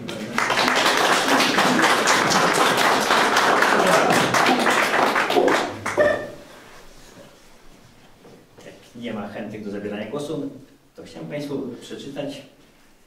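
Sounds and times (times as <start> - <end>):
audience clapping: 0.0 - 6.5.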